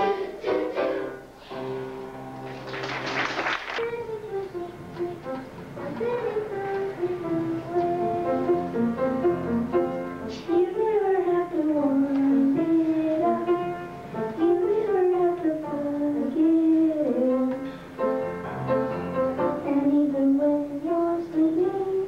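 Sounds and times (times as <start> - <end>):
children singing: 0.0 - 1.2, 3.8 - 8.9
instrumental accompaniment: 0.0 - 22.0.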